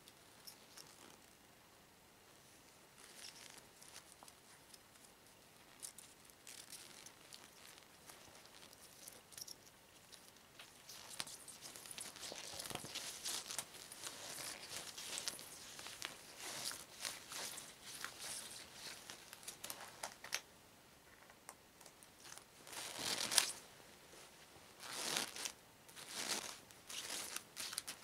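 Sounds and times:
faint rustles: 0:02.3 - 0:20.4
rubber gloves creaking: 0:05.6 - 0:20.4, 0:22.2 - 0:23.6, 0:24.8 - 0:28.0.

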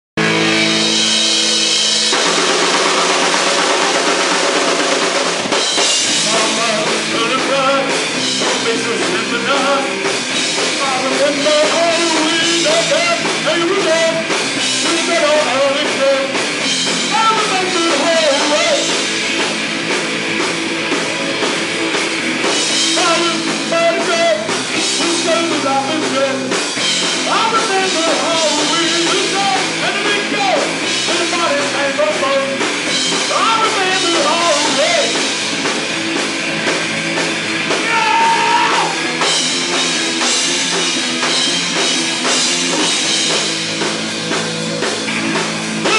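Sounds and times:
punk band playing: 0:00.2 - 0:45.9
person singing: 0:06.1 - 0:16.4, 0:17.1 - 0:18.9, 0:23.0 - 0:26.6, 0:27.3 - 0:32.6, 0:33.3 - 0:35.3.

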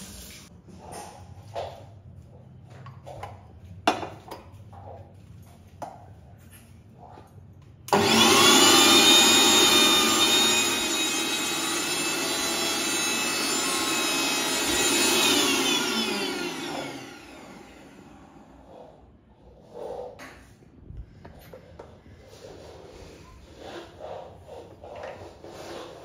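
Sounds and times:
mixer grinder motor whine: 0:07.9 - 0:18.8.

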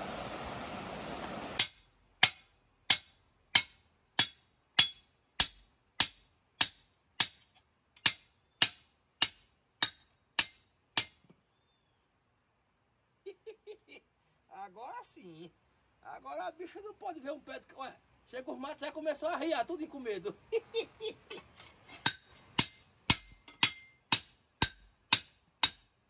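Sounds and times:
rushing stream water: 0:00.0 - 0:01.6
hammer striking metal blade: 0:01.6 - 0:11.2, 0:22.0 - 0:25.9.

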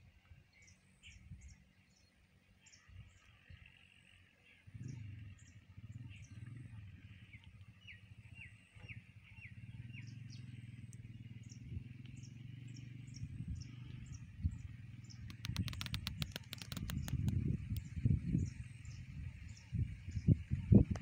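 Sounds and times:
low steady rumble: 0:00.0 - 0:21.0
small birds chirping: 0:00.5 - 0:21.0
rapid burst of clicks: 0:15.2 - 0:17.9.

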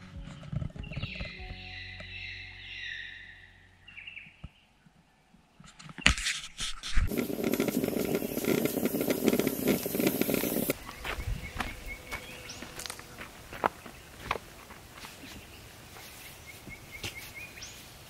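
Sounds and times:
footsteps: 0:05.6 - 0:17.9
moka pot hissing and sputtering: 0:07.0 - 0:10.8.

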